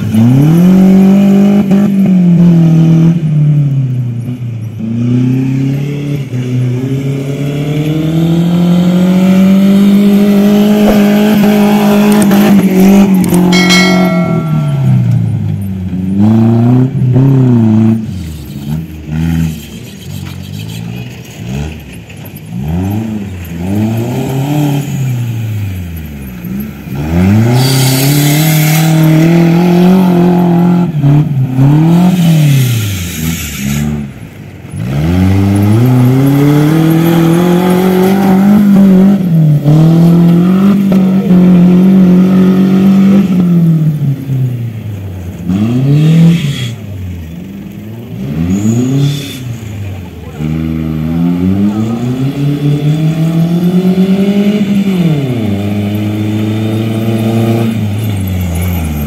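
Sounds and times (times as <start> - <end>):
buggy engine revving: 0.0 - 59.0
short high-pitched tone: 13.5 - 15.4
wheels spraying dirt: 17.9 - 59.0.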